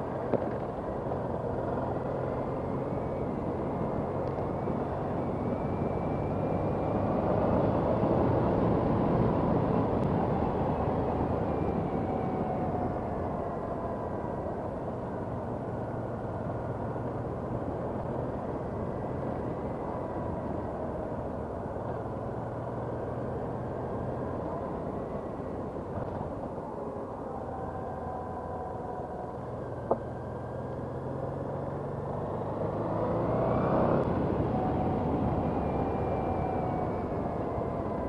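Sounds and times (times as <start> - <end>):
wind and road noise: 0.0 - 38.0.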